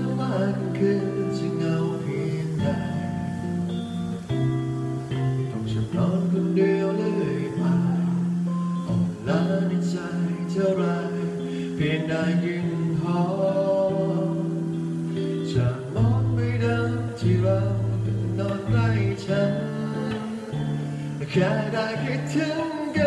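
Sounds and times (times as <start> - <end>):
acoustic guitar: 0.0 - 23.0
man singing: 0.0 - 23.0
bass notes: 13.8 - 23.0.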